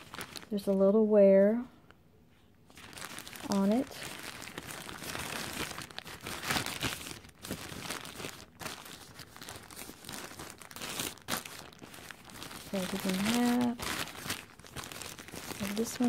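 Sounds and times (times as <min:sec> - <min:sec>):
plastic shower caps crinkling: 0:00.0 - 0:00.8, 0:02.7 - 0:16.0.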